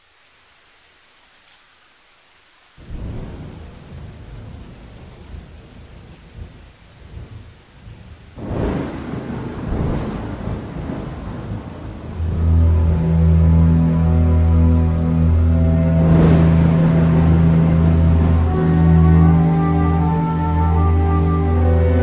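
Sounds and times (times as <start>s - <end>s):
rain: 0.0s - 22.0s
rolling thunder: 2.8s - 22.0s
deep bass chord: 12.1s - 22.0s.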